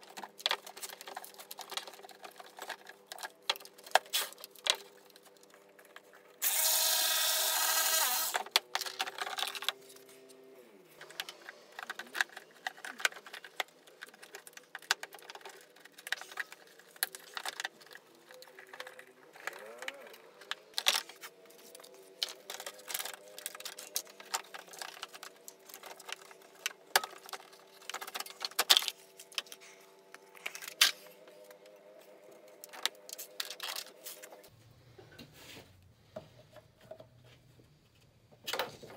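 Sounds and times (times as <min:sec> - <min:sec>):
tools and plastic parts rattling: 0:00.0 - 0:06.7, 0:08.0 - 0:34.5, 0:38.3 - 0:38.9
small power tool whirring: 0:06.4 - 0:08.5.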